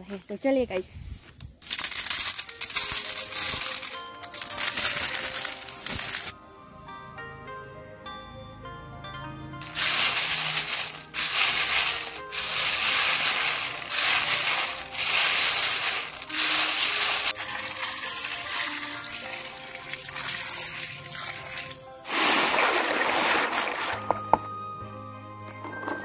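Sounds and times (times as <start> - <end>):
snail shells clattering in basket: 1.6 - 6.3, 9.6 - 24.1
snails splashing into water: 10.0 - 24.0.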